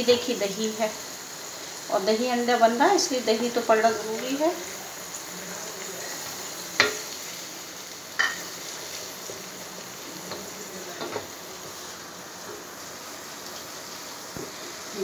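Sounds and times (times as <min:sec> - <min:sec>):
food sizzling in a pan: 0:00.0 - 0:15.0
spatula clacking on pan: 0:06.8 - 0:07.1, 0:08.2 - 0:08.4.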